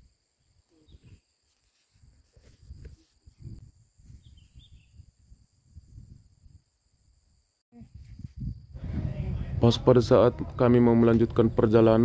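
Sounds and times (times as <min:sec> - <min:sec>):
insects droning: 0:00.0 - 0:08.9
wind buffeting microphone: 0:02.0 - 0:07.1, 0:07.7 - 0:12.0.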